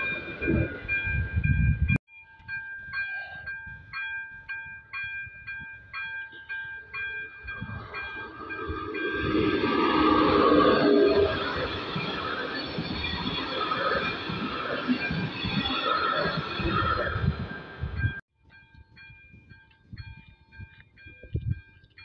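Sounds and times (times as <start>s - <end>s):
train rumble: 3.3s - 18.2s
electric locomotive motor whine: 7.4s - 18.1s.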